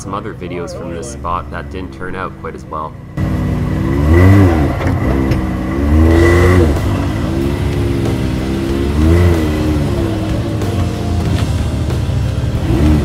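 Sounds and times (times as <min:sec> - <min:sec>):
utility vehicle engine revving: 0:00.0 - 0:13.0.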